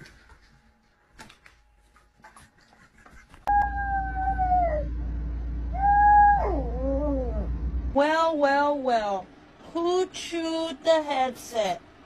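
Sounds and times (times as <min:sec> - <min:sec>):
steady low hum: 0:00.0 - 0:12.0
dog howling: 0:03.5 - 0:05.0, 0:05.7 - 0:07.6.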